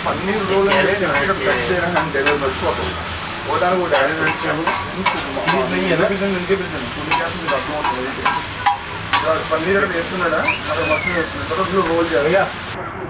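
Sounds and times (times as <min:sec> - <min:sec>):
food sizzling on a griddle: 0:00.0 - 0:12.8
spatula clinking on plate: 0:00.4 - 0:02.9, 0:03.6 - 0:10.6
metal spatula scraping: 0:00.4 - 0:10.2.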